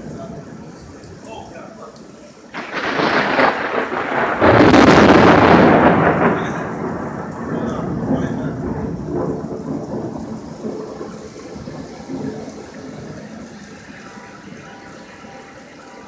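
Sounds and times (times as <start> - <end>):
rolling thunder: 2.5 - 15.4.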